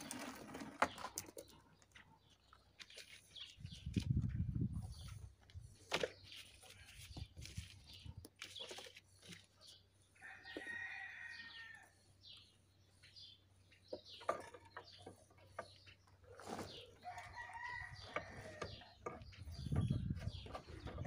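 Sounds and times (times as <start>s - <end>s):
rooster crowing: 10.2s - 12.0s, 17.0s - 18.7s.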